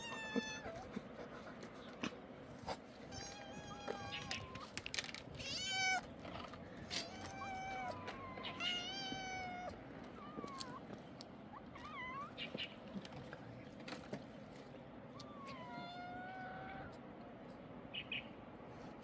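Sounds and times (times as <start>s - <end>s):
kittens meowing: 0.0s - 1.1s, 3.1s - 12.7s, 15.1s - 17.1s.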